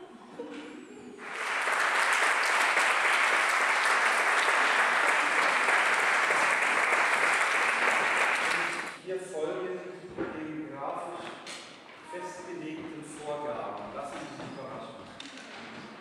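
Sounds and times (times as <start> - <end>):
audience applauding: 1.2 - 9.0.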